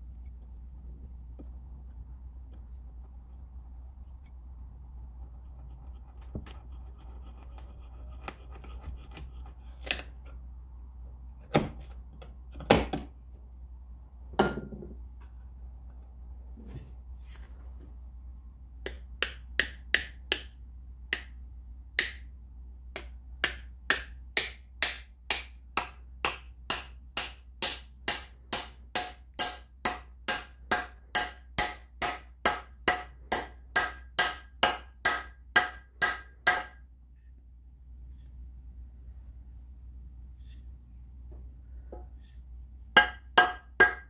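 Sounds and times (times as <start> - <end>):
hammer striking wedge: 14.4 - 14.8, 18.8 - 21.4, 22.0 - 22.3, 23.0 - 36.8, 43.0 - 44.0.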